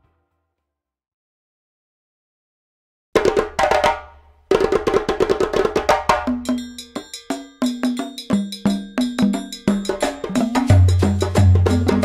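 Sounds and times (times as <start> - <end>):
percussive music: 3.2 - 12.0.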